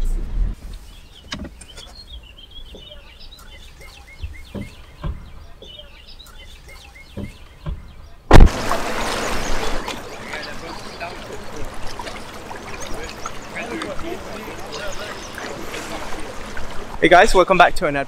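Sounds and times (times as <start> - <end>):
birds chirping: 0.8 - 18.0
rush of outdoor noise: 2.7 - 18.0
soft knocks and bumps: 4.2 - 5.8, 7.1 - 8.5
sudden loud burst: 8.3 - 9.9.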